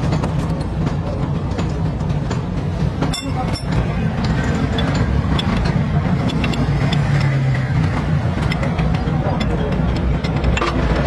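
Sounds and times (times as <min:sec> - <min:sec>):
vehicle engine rumbling: 0:00.0 - 0:11.0
metallic clicks of hand tools: 0:04.7 - 0:07.4.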